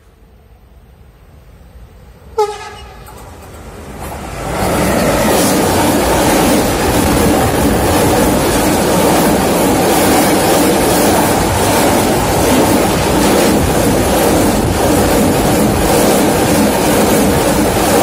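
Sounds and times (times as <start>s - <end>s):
freight train wagons rumbling on rails: 0.0s - 18.0s
locomotive horn blast: 2.3s - 3.1s.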